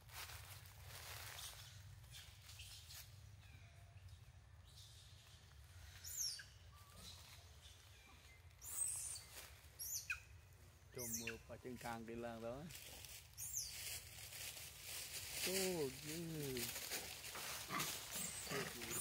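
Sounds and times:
high-pitched bird chirps: 11.0 - 11.4.

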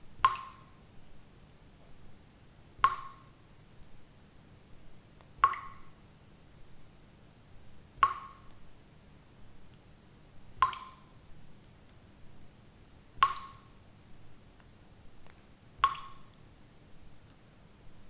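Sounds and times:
water drops dripping: 0.2 - 0.8, 2.8 - 3.4, 5.2 - 6.6, 8.0 - 8.6, 10.6 - 11.8, 13.2 - 14.3, 15.2 - 16.4.

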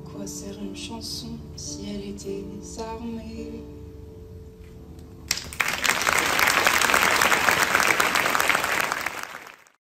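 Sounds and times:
crowd applauding: 5.3 - 9.8.

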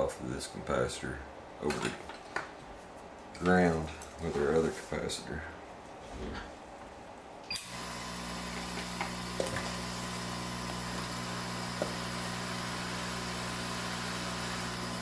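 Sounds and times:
electric fan motor humming: 7.5 - 15.0.

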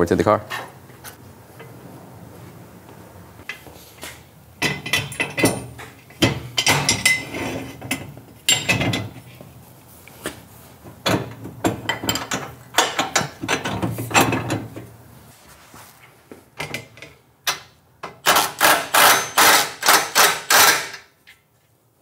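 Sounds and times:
steel parts knocking and clattering: 4.6 - 9.1.

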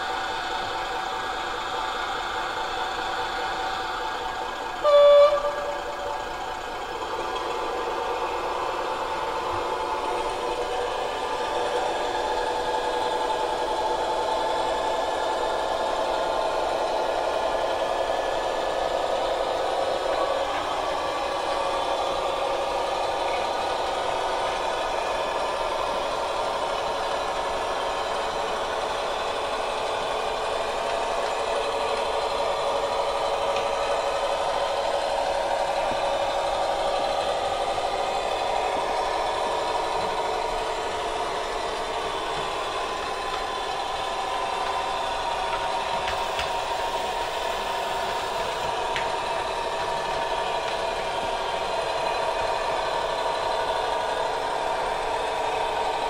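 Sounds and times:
diesel engine sound from small loudspeaker: 0.0 - 56.0.

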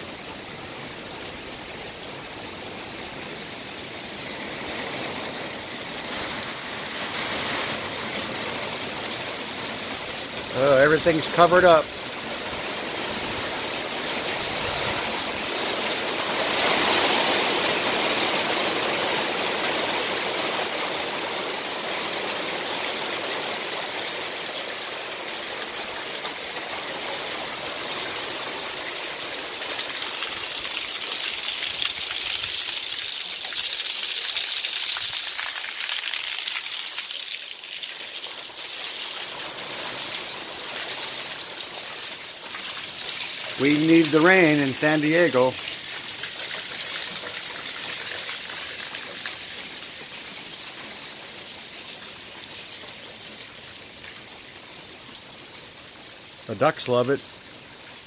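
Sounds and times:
heavy rain: 0.0 - 58.0
runoff splashing onto paving: 0.0 - 58.0.

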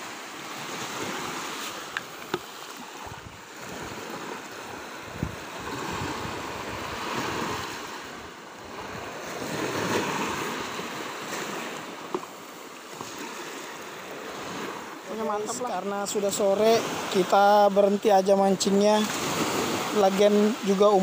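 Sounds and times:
surf washing onto beach: 0.0 - 21.0
wind on microphone: 3.0 - 12.0.

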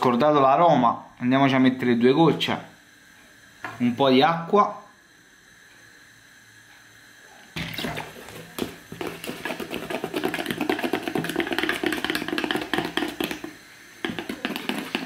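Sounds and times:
wire whisk beating batter in bowl: 7.8 - 15.0.

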